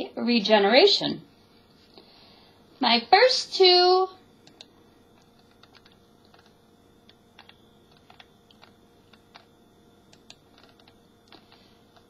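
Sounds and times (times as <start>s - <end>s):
keyboard typing: 4.4s - 9.5s, 10.1s - 12.0s.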